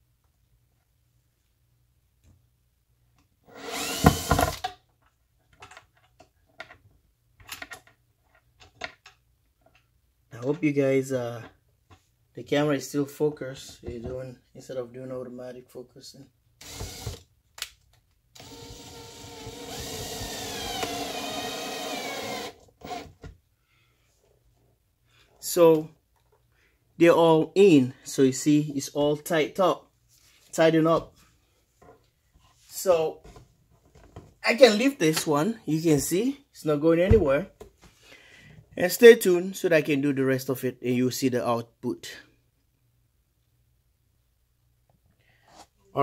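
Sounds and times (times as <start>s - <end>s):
cordless drill whining: 3.5s - 4.6s, 16.6s - 17.2s, 18.4s - 23.2s.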